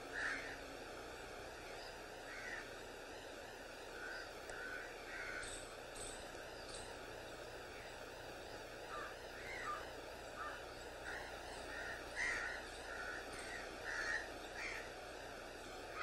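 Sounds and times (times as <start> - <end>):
tape hiss: 0.0 - 16.0
crows cawing: 0.1 - 0.6, 2.2 - 2.8, 4.0 - 6.2, 8.9 - 15.0.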